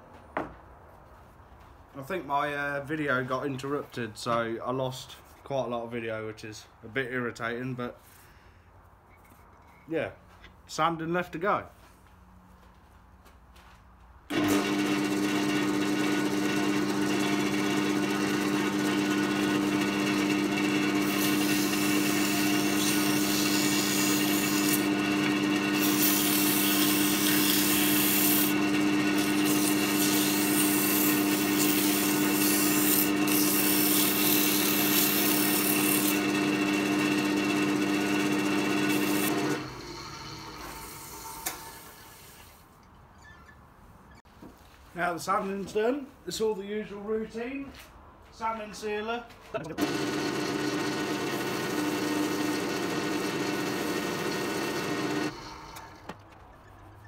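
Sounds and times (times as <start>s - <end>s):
lathe motor hum: 14.3s - 41.7s, 49.8s - 56.0s
sandpaper rasping on wood: 25.8s - 28.6s, 29.2s - 36.1s.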